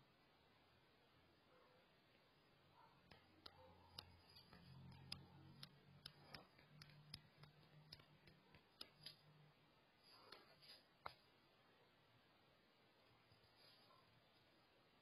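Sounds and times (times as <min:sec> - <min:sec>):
faint ticking clicks: 0:02.9 - 0:09.5.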